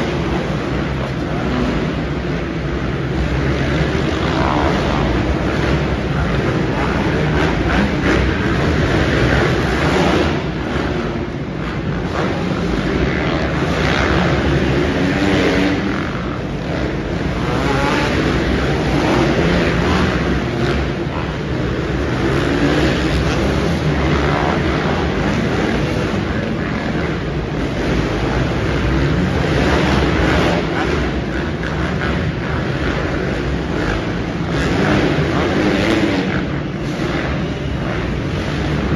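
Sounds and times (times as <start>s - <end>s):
dirt bike engines revving: 0.0s - 38.9s.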